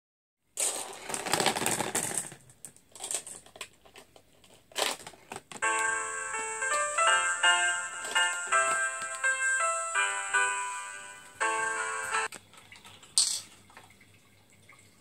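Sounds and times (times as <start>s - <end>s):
marbles rattling down tubes: 0.6s - 3.7s
tinkling melody: 5.6s - 12.3s.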